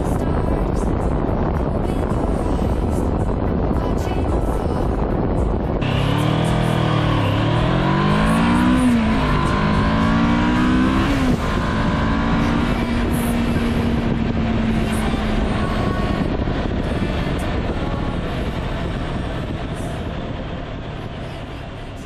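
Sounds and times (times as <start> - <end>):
wind and road rush: 0.0 - 22.0
motorcycle engine accelerating: 5.8 - 22.0.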